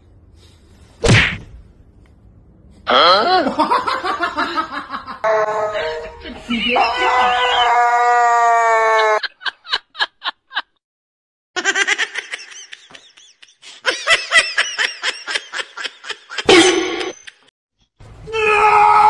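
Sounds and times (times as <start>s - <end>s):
loud cry: 5.2s - 9.2s, 18.3s - 19.0s.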